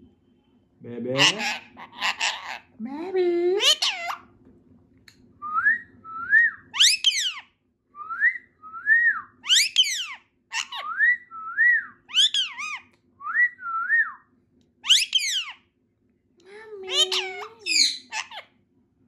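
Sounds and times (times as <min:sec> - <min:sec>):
parakeet screeches: 0:01.1 - 0:02.7, 0:03.6 - 0:04.2, 0:06.8 - 0:07.5, 0:09.4 - 0:10.9, 0:12.1 - 0:12.8, 0:14.8 - 0:15.6, 0:16.9 - 0:18.5
parakeet whistles: 0:06.4 - 0:07.4, 0:09.4 - 0:12.8, 0:14.8 - 0:15.6.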